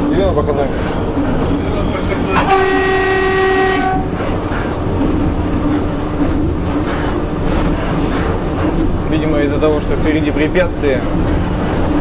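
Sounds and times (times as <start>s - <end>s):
electric train running: 0.0s - 12.0s
rail clatter: 0.0s - 12.0s
locomotive horn blast: 1.7s - 4.4s.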